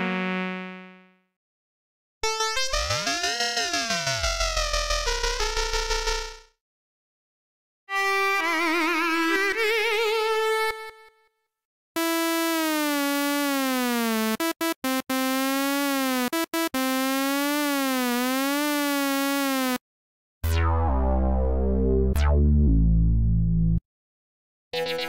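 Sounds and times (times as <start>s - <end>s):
deep synth bass notes: 20.4s - 23.8s.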